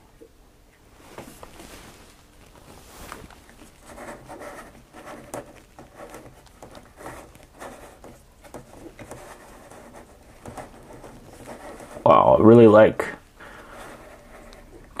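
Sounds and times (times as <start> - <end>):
fingers rubbing on base: 2.3 - 12.1, 13.6 - 14.8
plastic figure scraping and clicking: 3.8 - 12.1.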